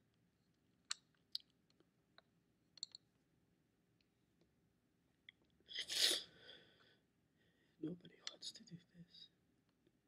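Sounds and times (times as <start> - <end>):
mouth and lip clicks: 0.8 - 3.0.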